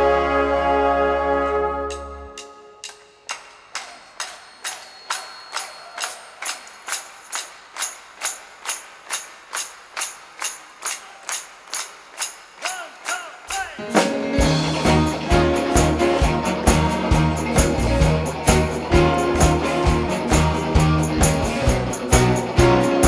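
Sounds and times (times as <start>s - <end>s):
band with bass and keyboard chords: 0.0s - 2.8s, 13.8s - 23.0s
hands clapping in a steady beat: 2.8s - 14.2s, 14.8s - 23.0s.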